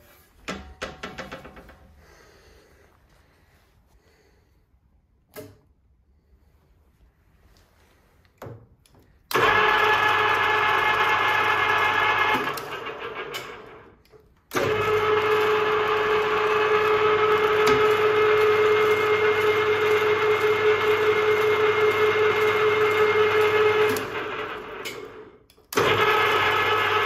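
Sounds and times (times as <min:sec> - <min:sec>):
metal lathe whining: 0:14.6 - 0:25.2.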